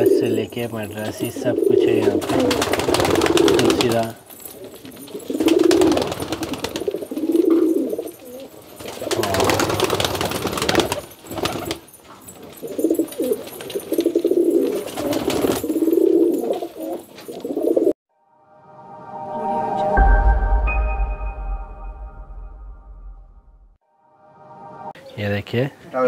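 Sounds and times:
pigeons cooing: 0.0s - 17.9s
wings flapping and scuffling: 1.0s - 17.9s.

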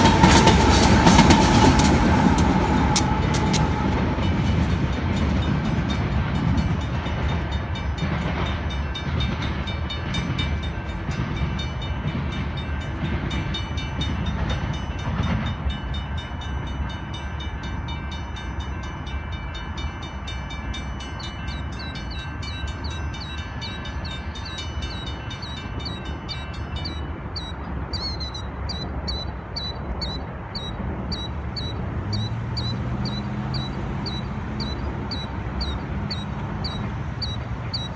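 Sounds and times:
road vehicle engine: 0.0s - 7.5s, 23.4s - 37.9s
crossing bell ringing: 0.0s - 37.9s
freight train rumble: 0.0s - 37.9s.

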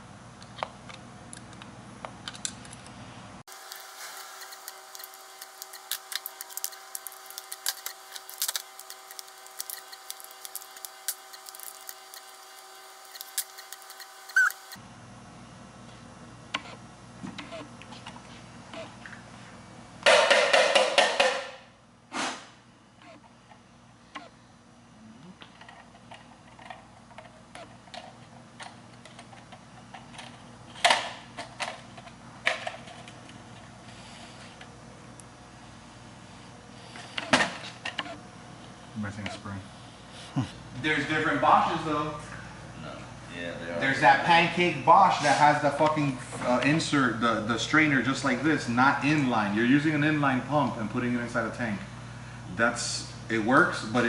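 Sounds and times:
short squeak: 13.2s - 14.8s
faint steady hum: 21.6s - 54.0s.

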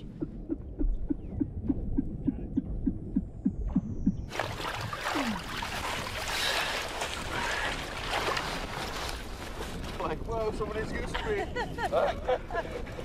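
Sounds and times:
low underwater pulses: 0.0s - 8.6s
water splashing: 4.3s - 10.3s.

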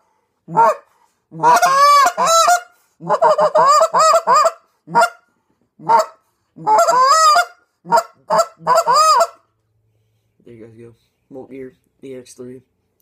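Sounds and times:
goose call honks and clucks: 0.0s - 9.5s.

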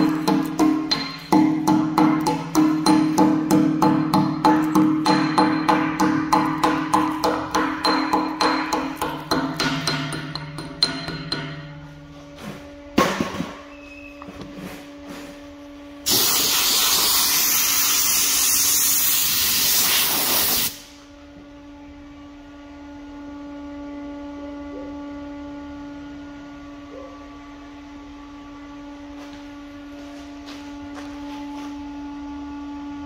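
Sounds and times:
steady hum: 0.0s - 18.4s.

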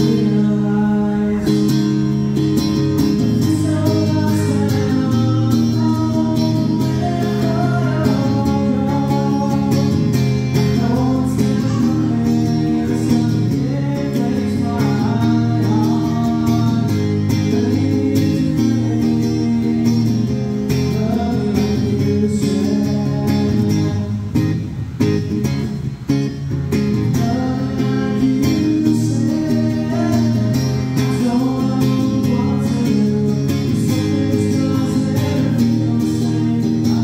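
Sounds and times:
man singing: 0.0s - 24.3s, 26.9s - 37.0s
strummed acoustic guitar: 0.0s - 37.0s.

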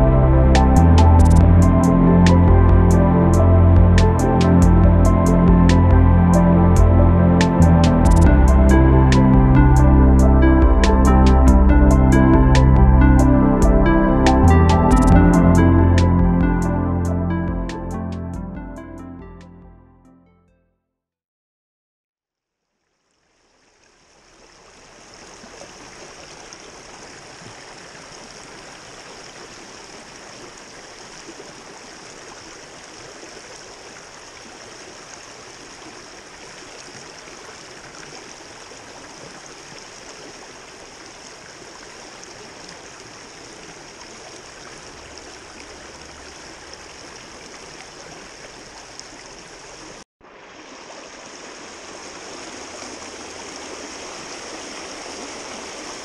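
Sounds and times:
stream rushing over rocks: 23.6s - 56.0s.

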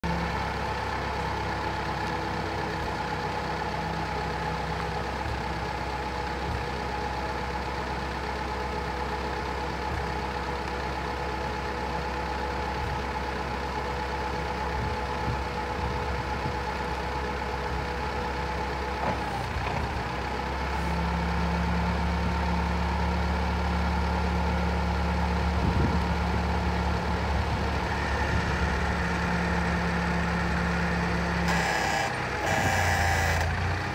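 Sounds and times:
forklift engine running: 0.0s - 33.9s.

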